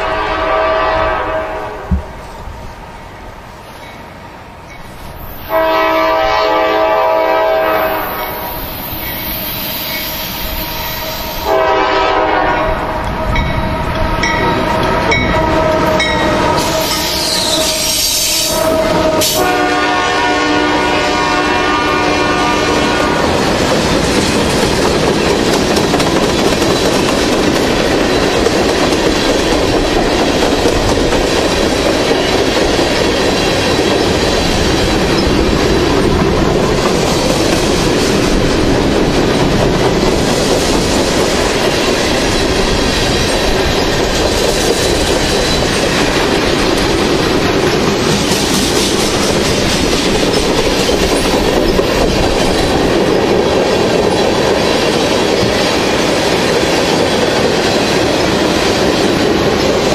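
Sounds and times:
locomotive horn: 0:00.0 - 0:02.1, 0:05.5 - 0:08.3, 0:10.5 - 0:23.4
steel wheels on rails: 0:01.9 - 0:59.9.

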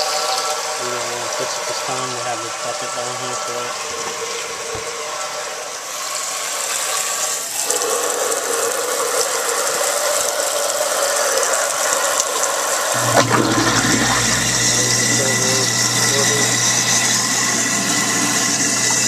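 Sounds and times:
garbage disposal humming: 0:00.0 - 0:19.0
tap water running into sink: 0:06.0 - 0:19.0.

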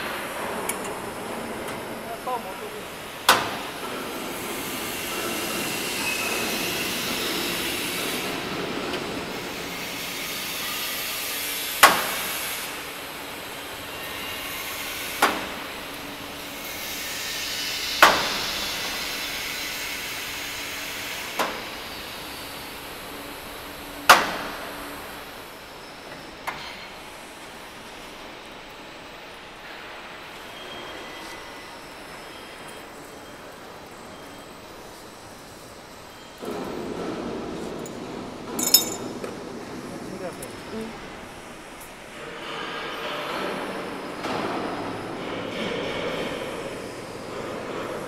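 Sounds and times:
ringing metal clank: 0:38.5 - 0:39.1.

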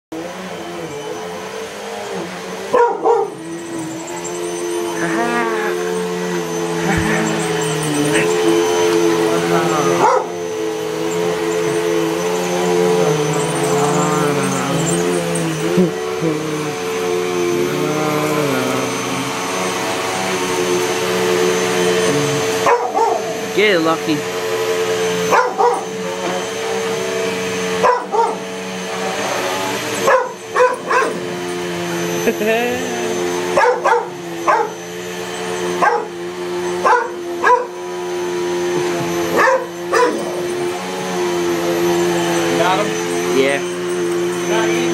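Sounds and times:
vacuum cleaner running: 0:00.1 - 0:44.9
dog barking: 0:02.7 - 0:03.4, 0:10.0 - 0:10.4, 0:22.6 - 0:23.4, 0:25.3 - 0:26.0, 0:27.8 - 0:28.5, 0:30.0 - 0:31.3, 0:33.6 - 0:34.8, 0:35.8 - 0:36.2, 0:36.8 - 0:37.8, 0:39.3 - 0:40.6.

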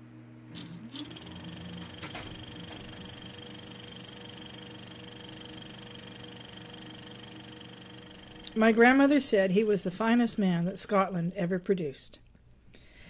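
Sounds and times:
small motor whining: 0:00.5 - 0:09.8.

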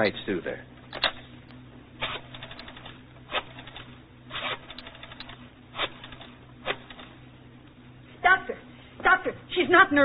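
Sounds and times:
old recording hum: 0:00.0 - 0:10.0.

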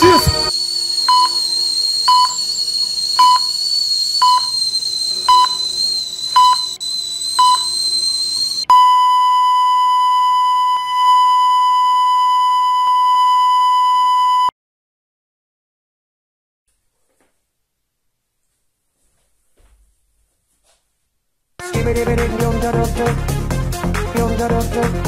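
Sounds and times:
steady high whine: 0:00.0 - 0:09.5
continuous flatline tone: 0:00.0 - 0:14.5
heart monitor beeps: 0:00.0 - 0:14.5.

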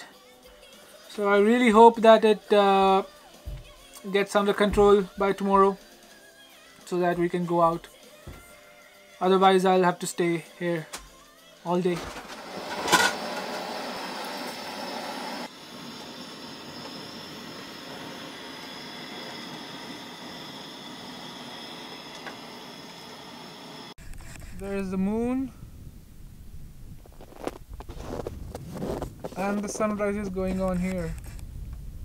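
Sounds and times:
wind rumbling on microphone: 0:24.0 - 0:32.0.

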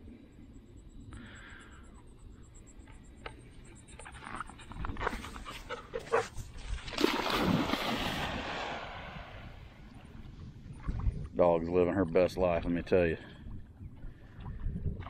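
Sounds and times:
dog splashing through water: 0:06.8 - 0:09.0
big splash and churning water: 0:06.8 - 0:10.1.

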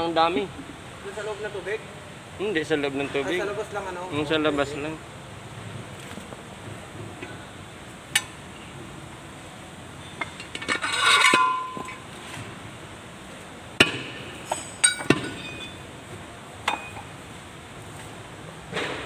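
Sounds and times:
scraping rattle of metal parts: 0:10.2 - 0:12.5
sharp metallic knocks: 0:13.8 - 0:15.8.

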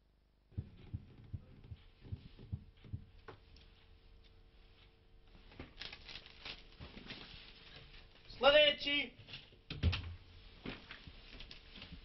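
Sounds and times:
steady low hum: 0:00.0 - 0:08.4
newspaper thumps and rustles: 0:05.5 - 0:08.2.

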